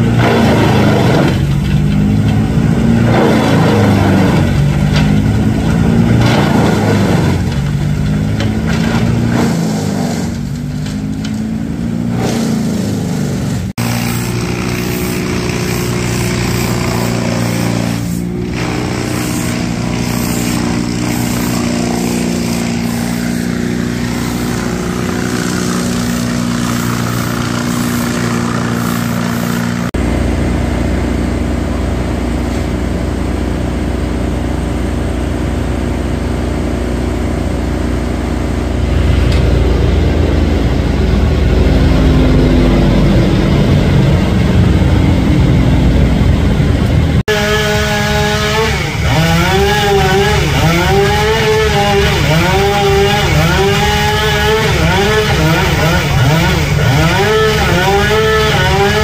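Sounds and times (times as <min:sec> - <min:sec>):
heavy engine running: 0:00.0 - 0:59.0
wood chipper engine labouring: 0:00.0 - 0:59.0
deep rumble: 0:37.0 - 0:47.3.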